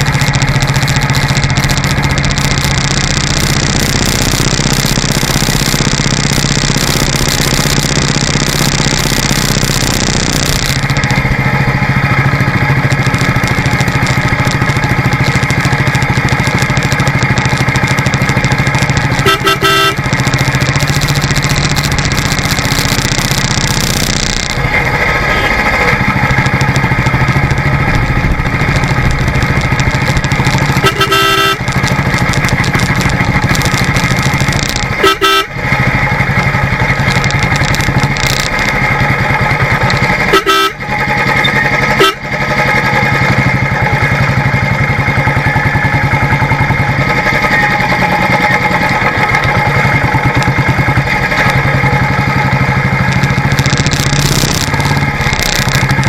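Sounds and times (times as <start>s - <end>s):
motorcycle engine running: 0.0s - 56.0s
horn beeps: 19.0s - 24.3s, 30.7s - 31.7s, 34.8s - 35.6s, 40.2s - 40.8s, 41.4s - 42.3s.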